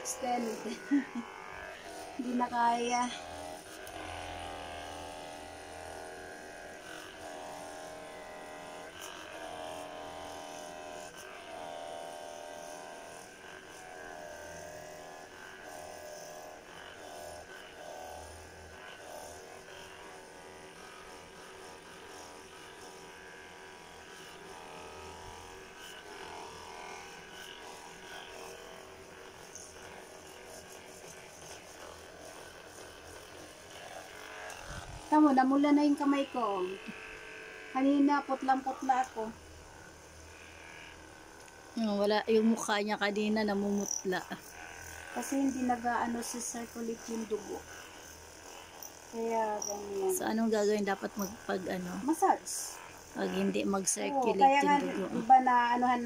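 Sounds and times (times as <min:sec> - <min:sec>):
massage gun electric buzz: 0:00.0 - 0:56.0.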